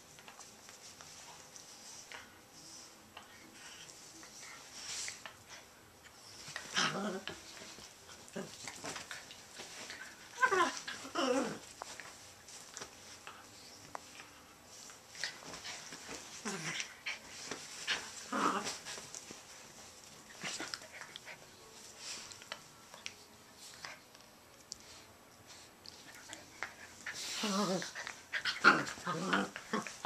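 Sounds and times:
small dogs whining and grumbling: 0:10.2 - 0:11.7.

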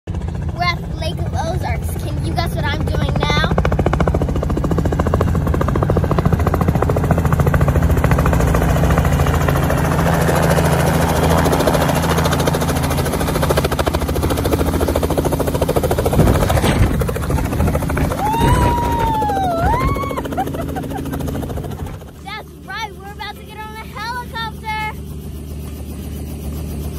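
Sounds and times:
helicopter engine hum: 0:00.1 - 0:26.9
helicopter rotor chopping: 0:00.1 - 0:26.9
high arching tone: 0:16.6 - 0:25.0.

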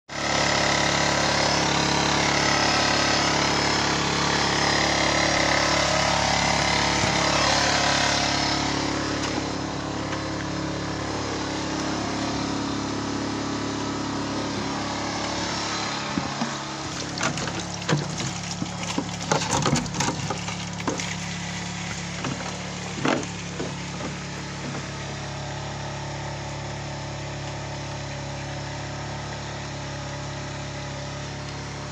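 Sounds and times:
petrol generator running: 0:00.1 - 0:31.9
knocks and clunks: 0:16.1 - 0:25.1.

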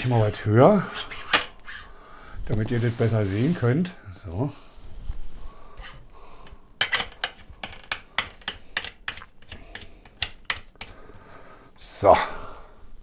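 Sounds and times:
sharp clicks and taps: 0:06.4 - 0:11.0.

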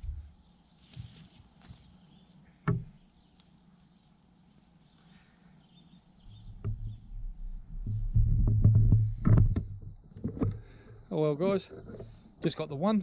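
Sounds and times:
faint bird chirps: 0:01.7 - 0:07.6.

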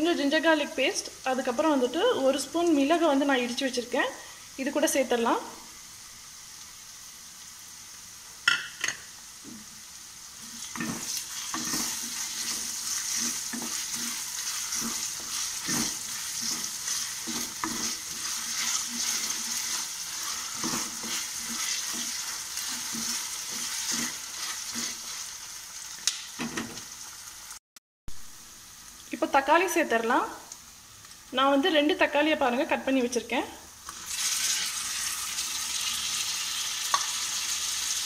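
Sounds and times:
onions sizzling in oil: 0:00.0 - 0:38.0
wooden spatula scraping pan: 0:10.4 - 0:25.2.

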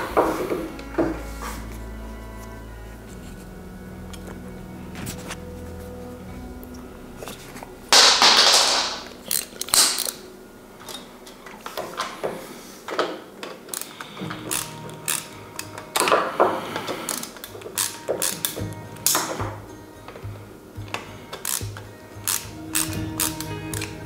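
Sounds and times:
loud scraping noise: 0:00.0 - 0:06.4
ratcheting screwdriver clicking: 0:13.7 - 0:16.2, 0:17.0 - 0:19.2, 0:21.3 - 0:23.9.

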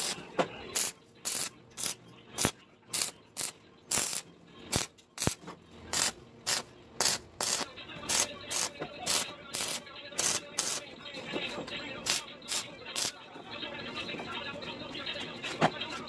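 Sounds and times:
arc welding crackling: 0:00.0 - 0:10.9, 0:12.0 - 0:13.2.

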